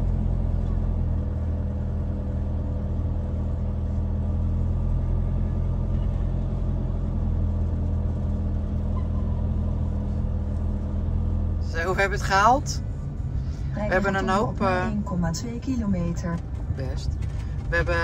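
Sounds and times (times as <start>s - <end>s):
vehicle engine and road hum: 0.0s - 18.0s.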